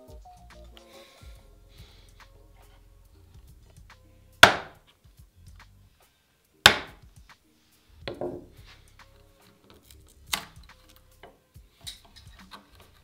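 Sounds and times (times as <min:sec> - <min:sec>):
chisel chopping into wood: 0:04.4 - 0:04.8, 0:06.6 - 0:07.0, 0:08.1 - 0:08.5
chisel laid on wooden bench: 0:08.1 - 0:08.6.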